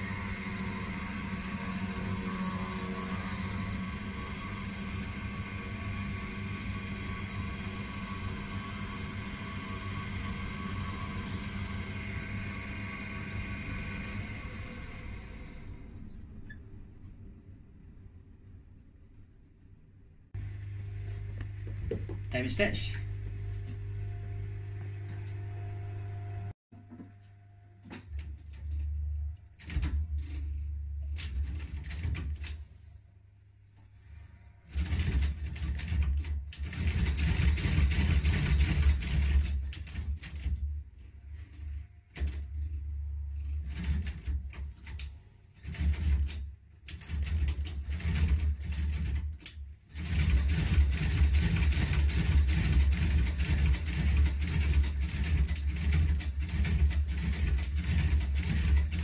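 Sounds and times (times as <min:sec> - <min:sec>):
stitching machine motor hum: 0:00.0 - 0:16.5, 0:20.4 - 0:26.6, 0:34.1 - 0:59.0
rhythmic mechanical clatter: 0:34.7 - 0:40.7, 0:43.4 - 0:59.0.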